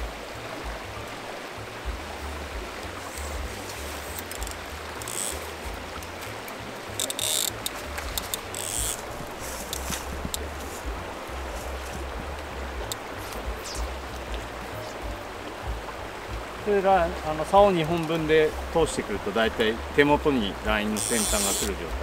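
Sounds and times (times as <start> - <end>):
stream water running: 0.0 - 22.0
hissy rustles: 3.0 - 15.0.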